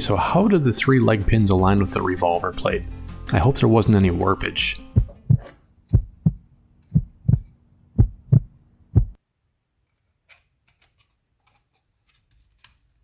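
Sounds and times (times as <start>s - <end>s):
heartbeat-like music beat: 4.9s - 9.2s
faint clicks of plastic parts: 9.8s - 13.0s.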